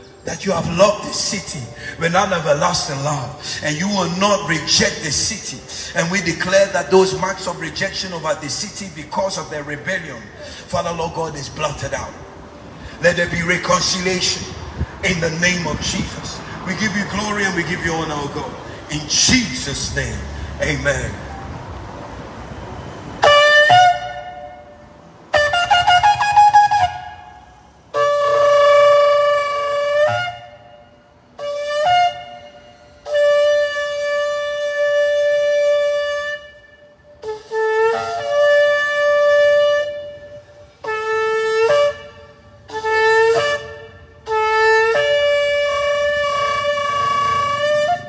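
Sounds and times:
shofar blasts: 0:23.2 - 0:48.0.

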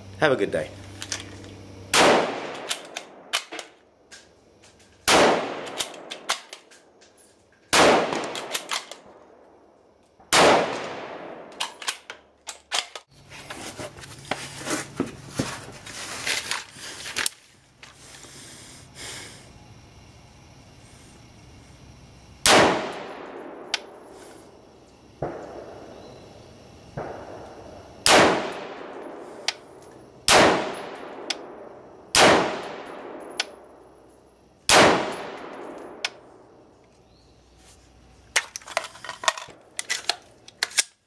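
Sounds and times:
rifle shots with echo: 0:01.9 - 0:03.5, 0:05.1 - 0:06.4, 0:07.7 - 0:09.2, 0:10.3 - 0:11.6, 0:22.4 - 0:23.9, 0:28.0 - 0:29.2, 0:30.3 - 0:33.3, 0:34.7 - 0:36.0
small clicks and rattles: 0:38.4 - 0:41.0.

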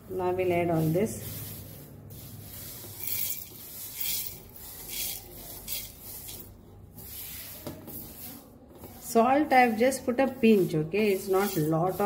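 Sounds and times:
seeds sliding into metal jar: 0:02.7 - 0:06.5.

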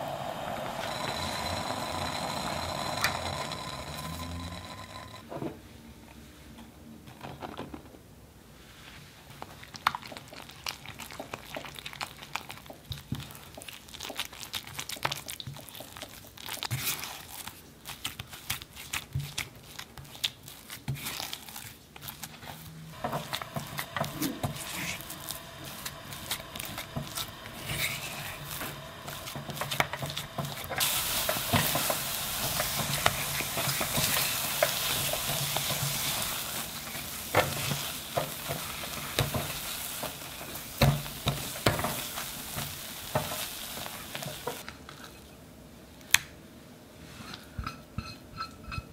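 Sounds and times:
dough sizzling: 0:00.0 - 0:05.2, 0:22.9 - 0:44.7
spatula scraping dough in saucepan: 0:22.9 - 0:44.6.

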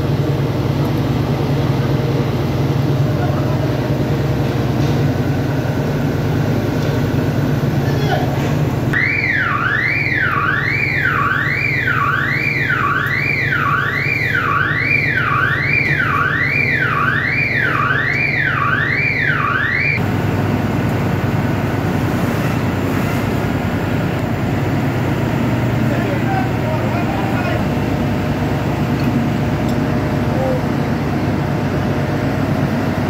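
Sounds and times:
warbling electronic alarm: 0:08.9 - 0:20.0.

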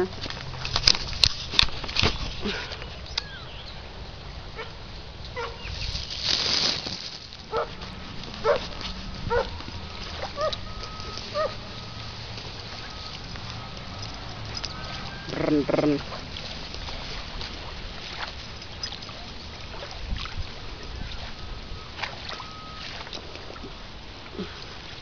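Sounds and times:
dog barking: 0:05.4 - 0:05.6, 0:07.5 - 0:07.8, 0:08.4 - 0:08.7, 0:09.3 - 0:09.6, 0:10.2 - 0:10.6, 0:11.3 - 0:11.6.

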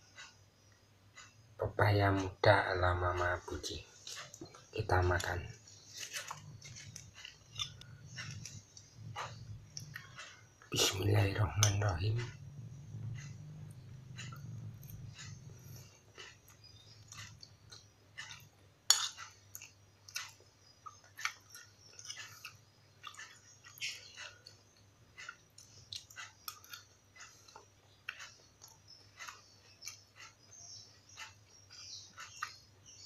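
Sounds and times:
faint low hum: 0:00.0 - 0:33.0
chewing: 0:03.4 - 0:11.0, 0:11.6 - 0:33.0
spoon scraping a glass bowl: 0:18.3 - 0:19.3.

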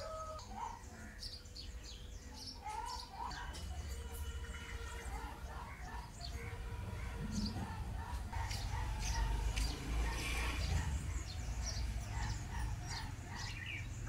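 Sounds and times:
small birds chirping: 0:00.0 - 0:14.0.

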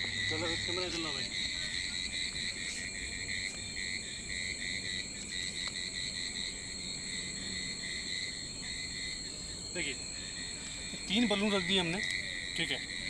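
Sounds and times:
crickets chirping: 0:00.0 - 0:13.0.

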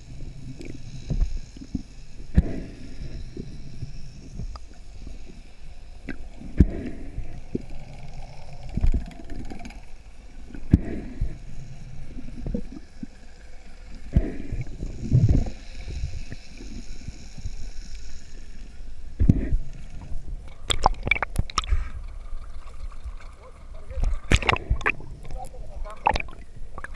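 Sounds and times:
muffled underwater rush: 0:19.2 - 0:26.9.

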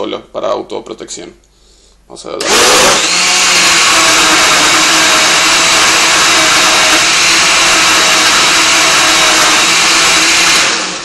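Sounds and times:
blender whirring: 0:02.4 - 0:11.0.

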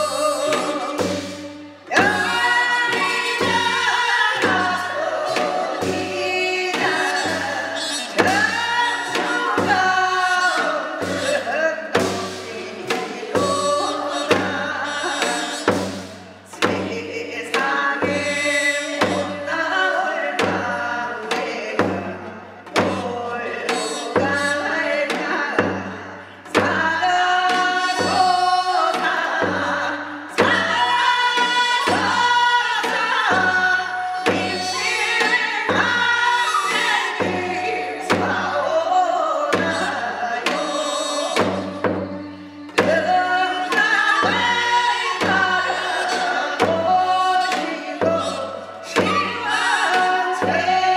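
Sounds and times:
slow steady drumbeat: 0:00.0 - 0:50.9
woman singing in wailing style: 0:00.0 - 0:50.9
women's chorus singing: 0:00.0 - 0:50.9.

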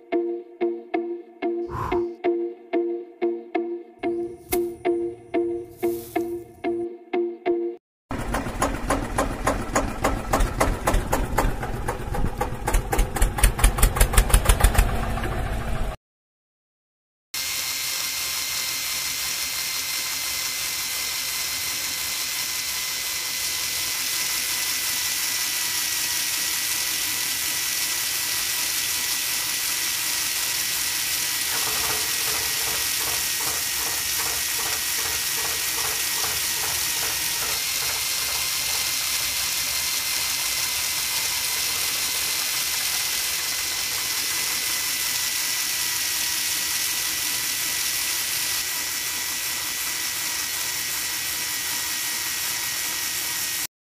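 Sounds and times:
auger drilling into sand: 0:17.4 - 0:53.7
small gear motors whining: 0:17.4 - 0:53.7
rhythmic gear chatter: 0:17.9 - 0:53.6.

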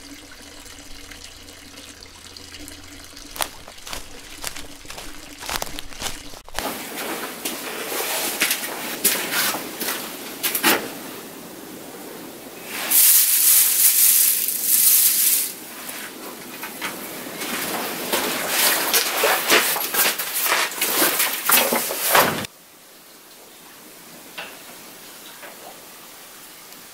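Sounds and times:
backpack being handled: 0:03.3 - 0:06.8
clothing rustling: 0:03.3 - 0:06.8
footsteps on wooden boards: 0:03.3 - 0:06.8.

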